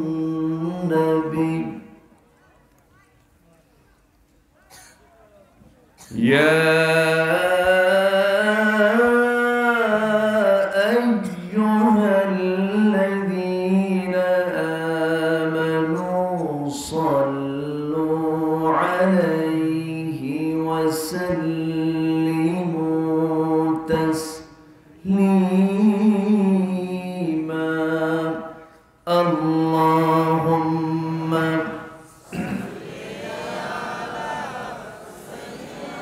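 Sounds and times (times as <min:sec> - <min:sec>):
man chanting into microphone: 0:00.0 - 0:02.0, 0:06.1 - 0:32.6.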